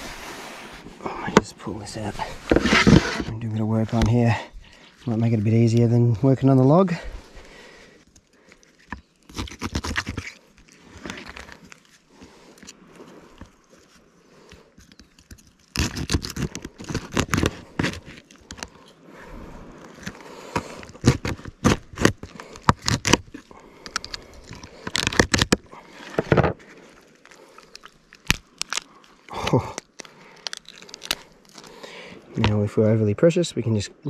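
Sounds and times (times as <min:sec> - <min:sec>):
shell scraping: 0:01.9 - 0:05.8, 0:19.8 - 0:29.2
crayfish shell cracking: 0:08.0 - 0:19.0, 0:19.8 - 0:32.6.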